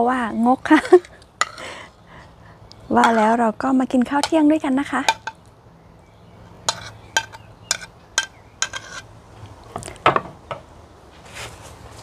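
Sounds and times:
plate clatter: 0:03.0 - 0:03.3, 0:05.1 - 0:05.4, 0:06.7 - 0:09.0
ceramic plates clinking: 0:03.0 - 0:03.4, 0:05.0 - 0:05.4, 0:06.7 - 0:09.0.

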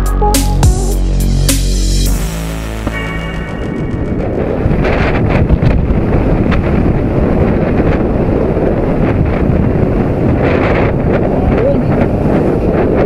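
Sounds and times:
background music: 0:00.0 - 0:04.7
wind buffeting microphone: 0:03.4 - 0:13.0.

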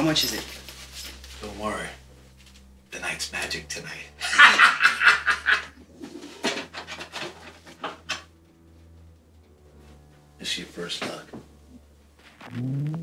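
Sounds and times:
man laughing loudly: 0:04.2 - 0:05.8.

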